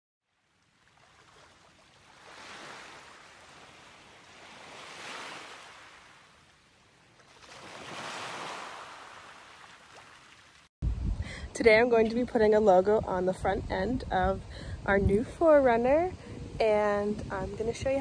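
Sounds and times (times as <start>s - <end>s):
ocean surf washing onto beach: 7.7s - 10.2s.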